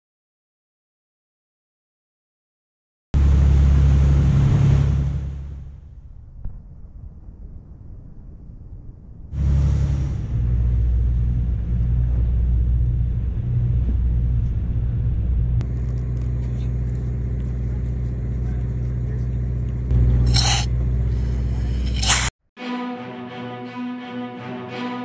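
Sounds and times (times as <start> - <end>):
boat engine rumbling: 3.2 - 6.2, 9.4 - 22.0
scuba regulator hiss: 20.3 - 22.3.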